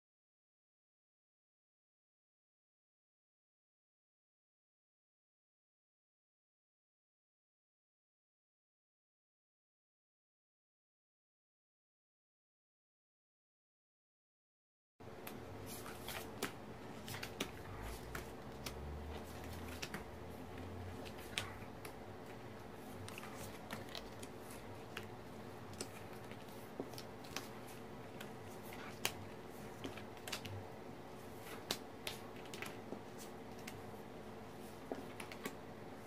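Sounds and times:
steady low hum: 15.0 - 36.0.

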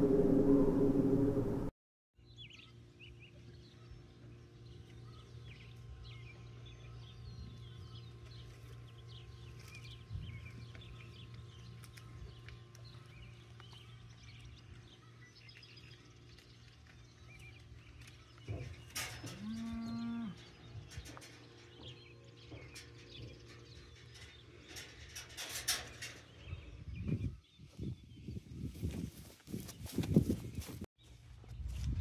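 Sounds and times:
steady low hum: 0.0 - 1.7
cow mooing: 19.3 - 20.4
footsteps on muddy ground: 28.7 - 32.0.

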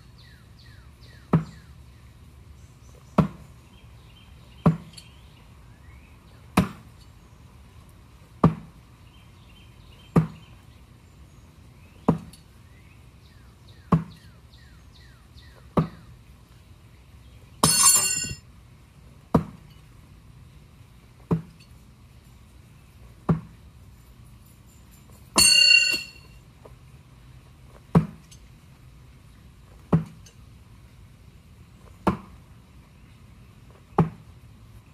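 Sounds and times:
ringing metallic clang: 17.6 - 18.4, 24.4 - 26.4.

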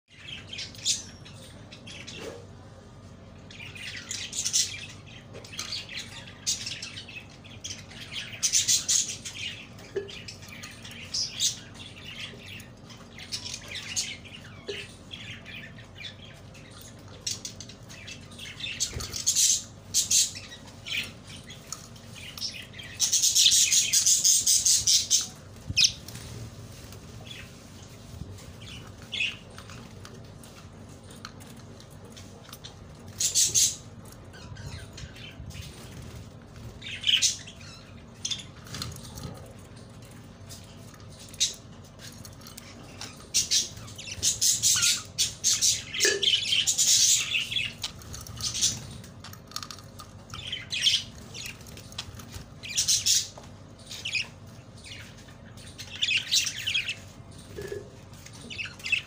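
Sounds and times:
budgerigars chirping: 42.8 - 49.0.

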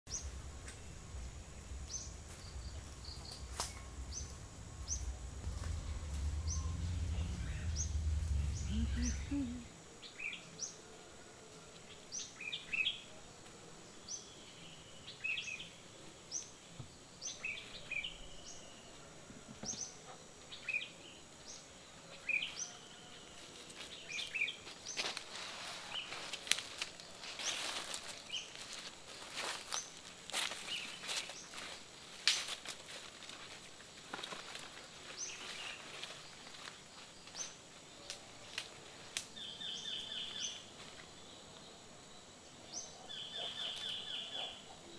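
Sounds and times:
low rumble: 0.1 - 9.8
wild birds chirping: 0.1 - 11.2, 13.8 - 32.1, 33.6 - 44.9
footsteps rustling through dry leaves: 0.2 - 9.2, 23.4 - 37.4.

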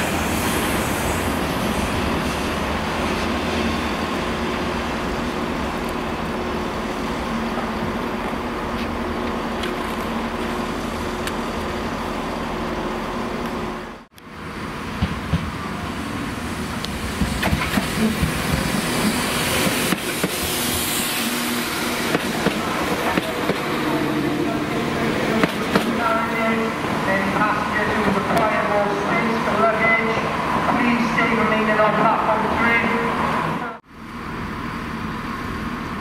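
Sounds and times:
freight train rolling past: 0.0 - 36.0
diesel train wheels clacking: 16.8 - 20.8.

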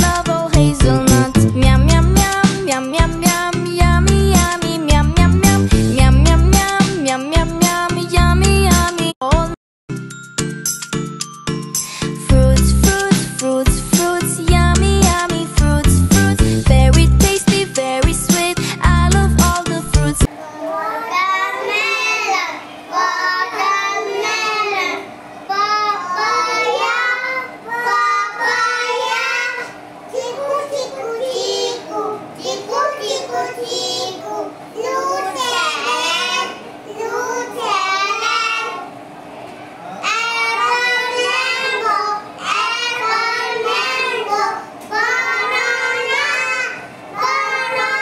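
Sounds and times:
children singing together: 19.8 - 39.0, 40.0 - 48.0.

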